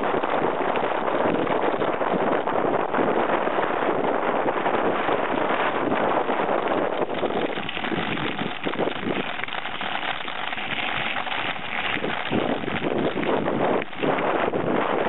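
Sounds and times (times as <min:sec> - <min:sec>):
bike rattling over rough ground: 0:04.8 - 0:15.0
tyres crunching on gravel: 0:07.0 - 0:14.2.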